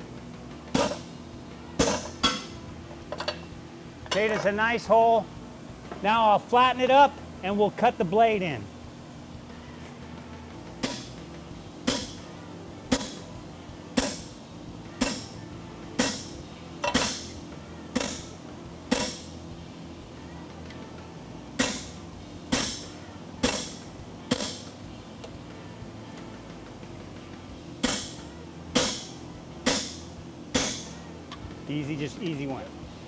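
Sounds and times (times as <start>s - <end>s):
sledgehammer clanking on hot steel: 11.9s - 12.2s, 22.5s - 24.7s, 27.8s - 28.2s, 28.8s - 30.9s.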